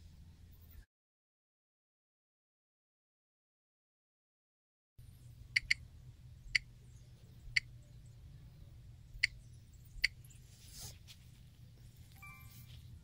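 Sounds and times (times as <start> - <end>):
low steady hum: 0.0 - 0.8, 5.0 - 13.0
fingertip tapping touchscreen: 5.6 - 5.8.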